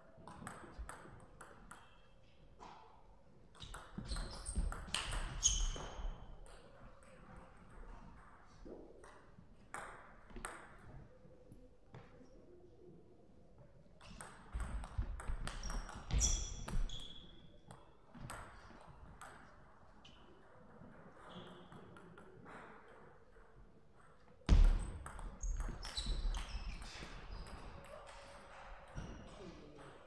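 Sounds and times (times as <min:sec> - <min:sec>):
shoes squeaking on floor: 0:04.0 - 0:06.3, 0:15.5 - 0:17.5, 0:25.4 - 0:29.5.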